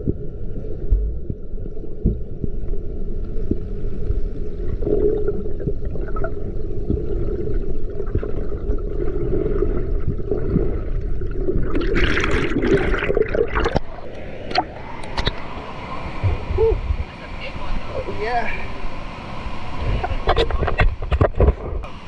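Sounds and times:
water gurgling and rushing: 0.0s - 21.6s
water splashing: 4.5s - 17.8s.

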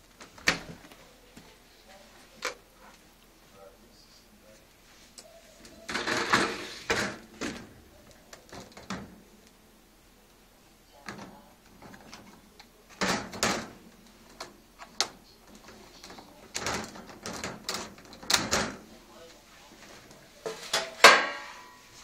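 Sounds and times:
dishwasher racks rattling: 5.9s - 7.8s, 8.5s - 9.2s, 13.0s - 14.5s, 15.6s - 18.9s, 20.5s - 21.8s.

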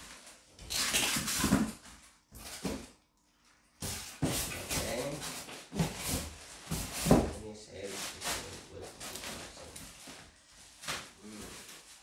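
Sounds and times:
styrofoam squeaking against cardboard: 0.6s - 1.6s
plastic bag rustling: 4.1s - 12.0s.

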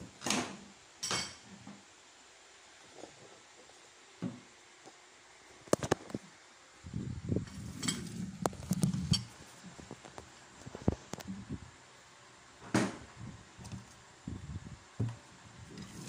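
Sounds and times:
dishes and cutlery clinking: 7.5s - 8.2s.

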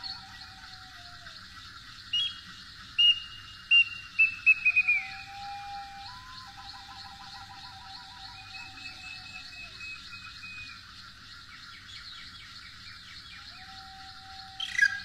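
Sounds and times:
bird-like chirping and twittering: 0.0s - 15.0s
flutes holding long notes: 4.2s - 10.8s.

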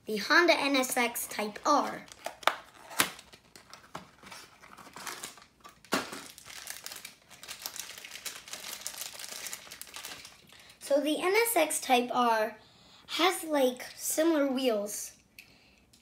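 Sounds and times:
plastic wrapper crinkling: 1.3s - 10.8s.

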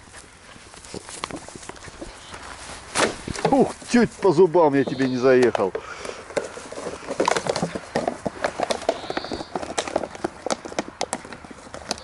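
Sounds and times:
puppy chewing plastic bottle: 0.0s - 2.4s, 5.3s - 12.0s.

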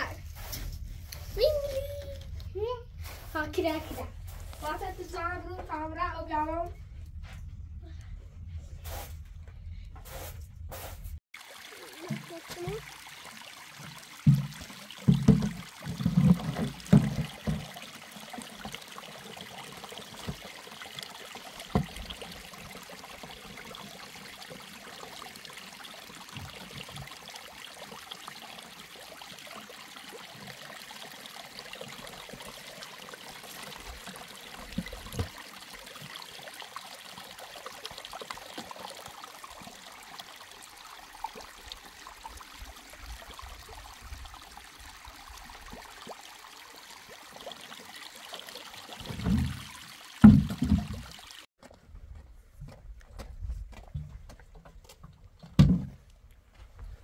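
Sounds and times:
running water rushing: 11.3s - 51.5s.

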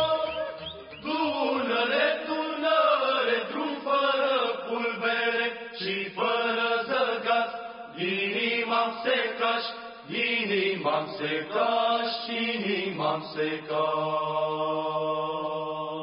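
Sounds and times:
person singing long notes: 0.0s - 2.8s.

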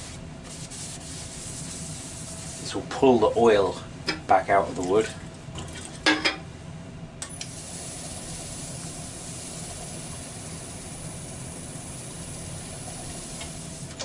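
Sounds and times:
paper towel hissing on spinning wood: 0.0s - 2.8s.

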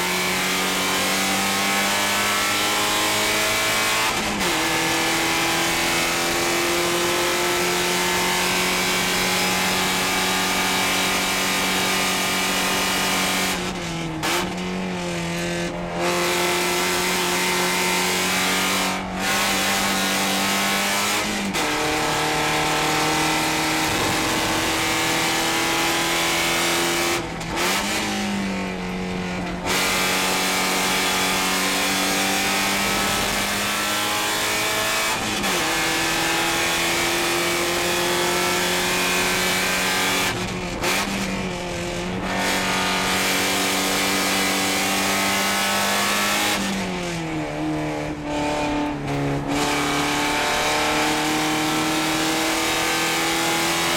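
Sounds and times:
race car engine revving: 0.0s - 53.9s.

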